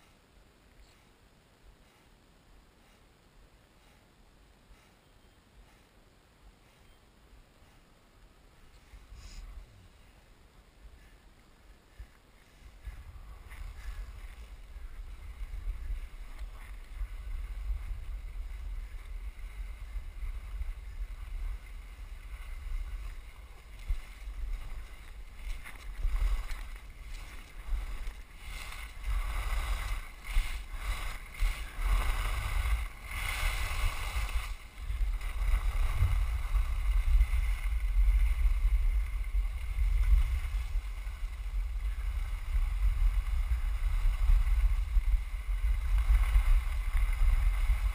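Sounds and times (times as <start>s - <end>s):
wind noise on microphone: 8.6s - 47.9s
skis scraping over snow: 12.4s - 47.9s.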